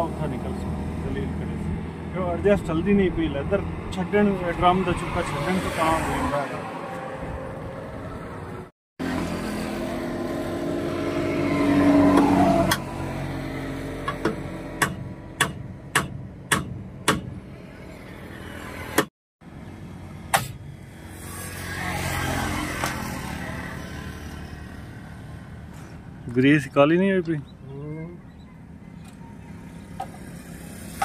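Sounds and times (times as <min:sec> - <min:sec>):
passing road vehicle: 0:00.0 - 0:15.4, 0:17.4 - 0:26.7, 0:27.6 - 0:31.0
hammer striking metal: 0:14.0 - 0:17.4, 0:20.3 - 0:20.6.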